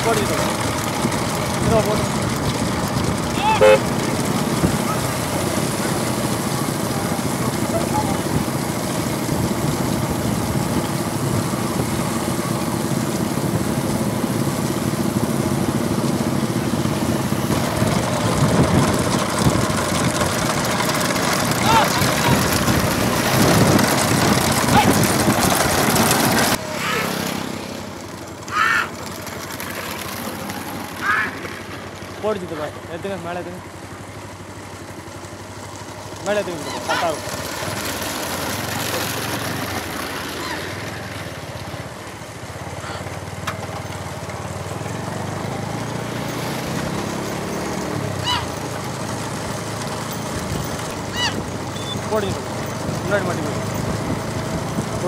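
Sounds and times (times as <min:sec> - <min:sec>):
motorcycle engines droning: 0:00.0 - 0:55.0
short high calls: 0:26.6 - 0:27.1, 0:28.5 - 0:29.0, 0:31.0 - 0:31.4, 0:36.6 - 0:37.2, 0:48.2 - 0:48.6, 0:51.0 - 0:52.1.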